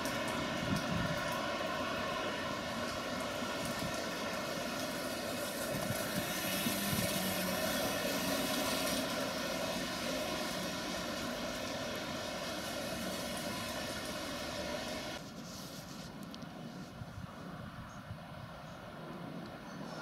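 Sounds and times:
electric train passing: 0.0 - 15.2.

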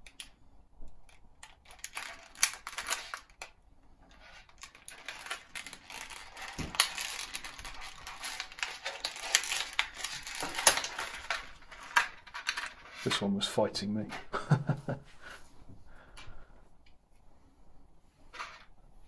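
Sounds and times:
plastic packaging crinkling: 1.1 - 13.2.

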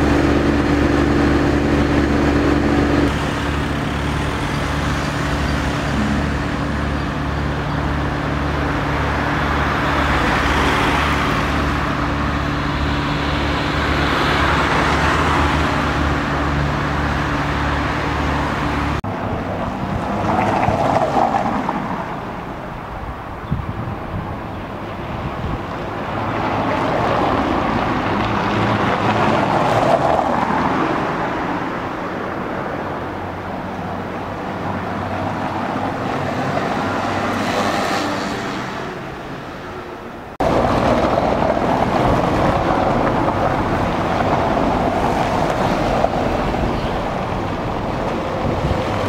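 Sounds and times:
traffic on cobbled road: 0.0 - 49.0
car passing: 25.1 - 49.0.

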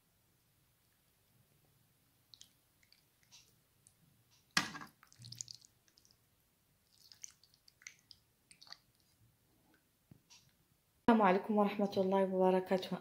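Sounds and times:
wet squishing of pasta: 2.2 - 9.9.

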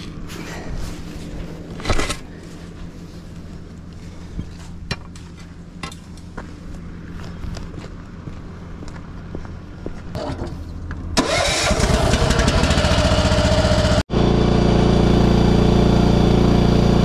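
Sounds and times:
steady low hum: 0.0 - 11.2.

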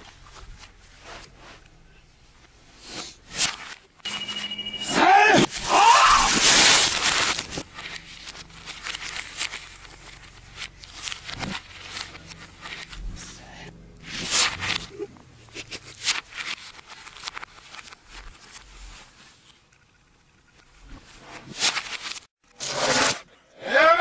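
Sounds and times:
thin pages rustling: 3.3 - 3.9, 5.5 - 13.3, 14.0 - 19.6, 20.8 - 23.2.

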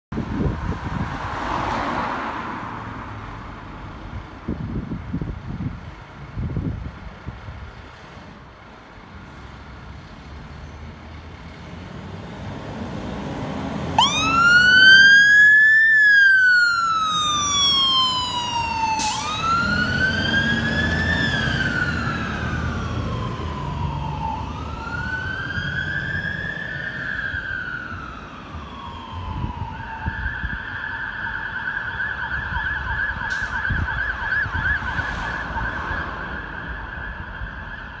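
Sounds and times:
fire engine rumble: 2.8 - 38.0
siren wailing and yelping: 14.0 - 38.0.

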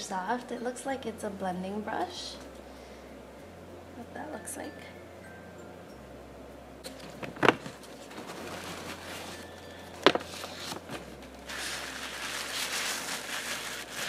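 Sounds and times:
tissue paper rustling: 6.9 - 14.0
items knocking on a box: 7.0 - 7.8, 10.0 - 11.0.

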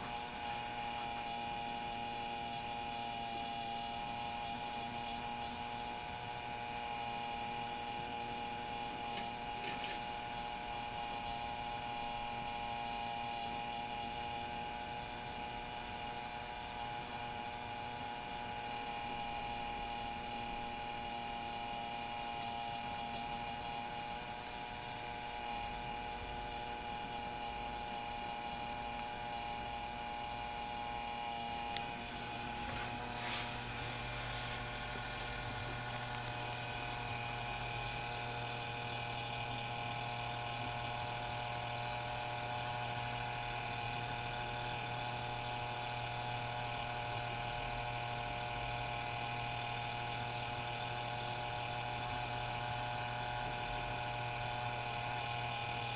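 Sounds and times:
electric drive whining hum: 0.0 - 55.9.

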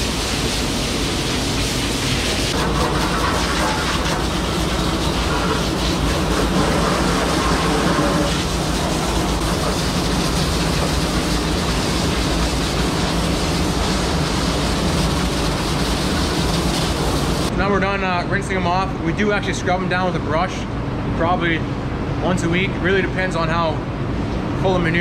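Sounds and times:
water jet spraying on metal: 0.0 - 17.5
low machine hum: 0.0 - 25.0.

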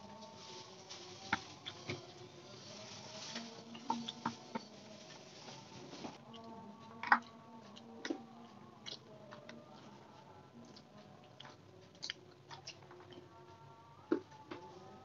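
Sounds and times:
chewing: 6.2 - 10.0, 10.6 - 13.5.

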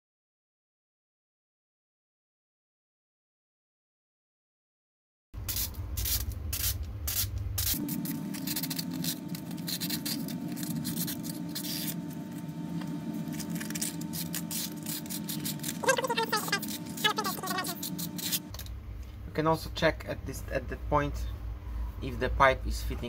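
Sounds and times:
sandpaper scratching plastic: 5.4 - 18.7.

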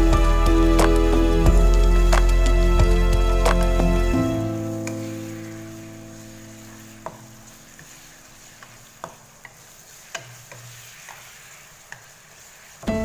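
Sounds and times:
held music chord: 0.0 - 7.5
meat frying in a wok: 0.0 - 13.0
wooden spatula knocking on pan: 7.0 - 8.0.

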